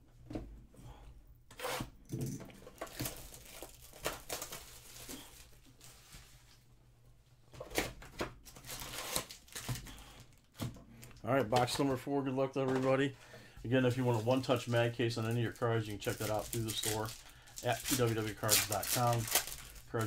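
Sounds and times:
plastic wrap ripping and crinkling: 2.7s - 6.0s, 8.5s - 10.5s, 13.9s - 20.0s.

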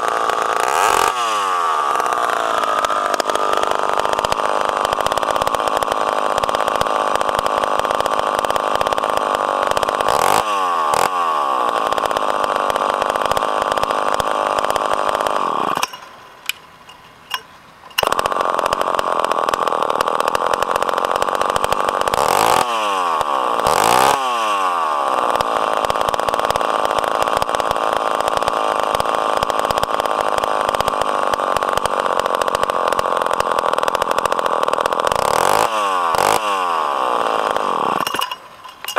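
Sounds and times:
two-stroke saw engine revving: 0.0s - 38.9s
clicks: 15.7s - 18.8s, 38.0s - 38.9s.

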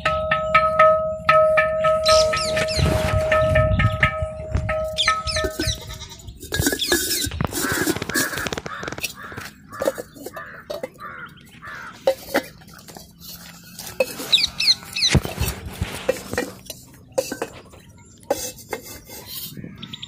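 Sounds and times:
bird calling: 2.0s - 3.0s, 4.8s - 18.1s, 19.1s - 20.0s
clay pots knocking together: 6.4s - 13.1s.

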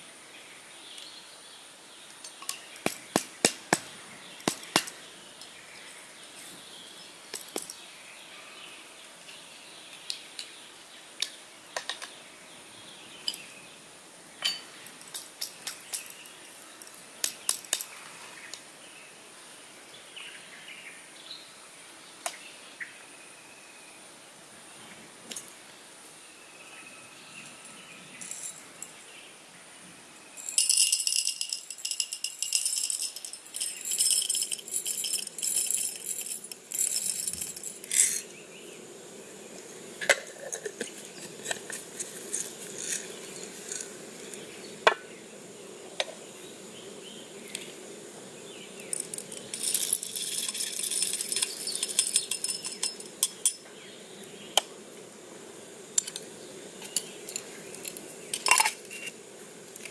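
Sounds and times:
coffee beans rattling in metal cup: 30.4s - 38.3s, 40.0s - 44.0s, 48.8s - 53.6s, 56.0s - 56.2s, 56.8s - 59.2s.

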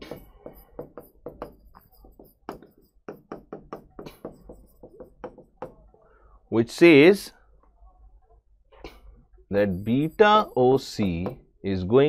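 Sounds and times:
stylus tapping on screen: 0.0s - 5.9s.

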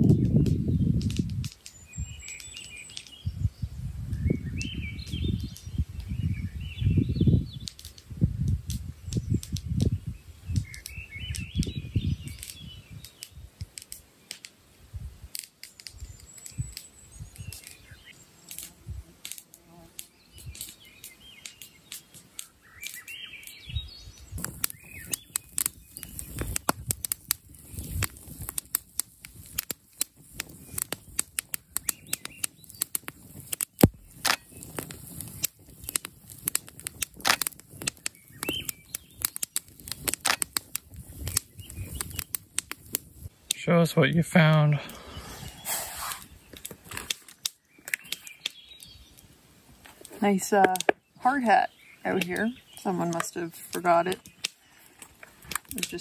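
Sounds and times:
wind gusts on microphone: 0.0s - 13.7s, 14.8s - 18.1s, 22.6s - 43.4s, 44.1s - 47.1s
campfire crackling: 0.0s - 56.0s
songbirds chirping: 0.0s - 56.0s.

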